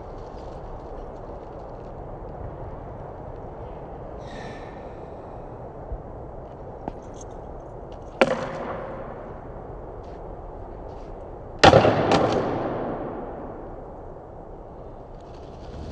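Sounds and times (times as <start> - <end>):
skateboard striking concrete: 8.2 - 9.3, 11.6 - 13.3.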